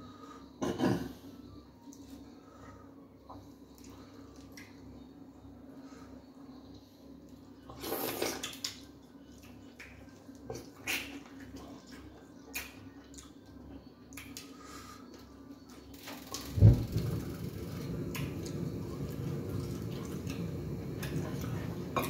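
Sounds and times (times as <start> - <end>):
wet squelching eating sounds: 7.7 - 15.2.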